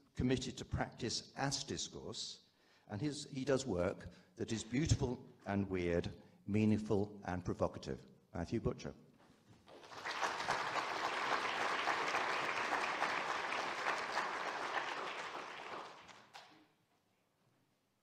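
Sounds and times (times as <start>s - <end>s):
audience applauding: 9.7s - 16.6s.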